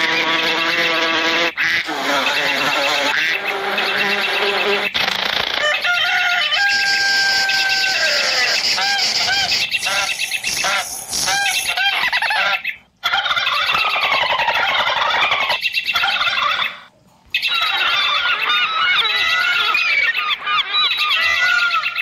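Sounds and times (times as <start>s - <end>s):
birds calling and chirping: 0.0s - 22.0s.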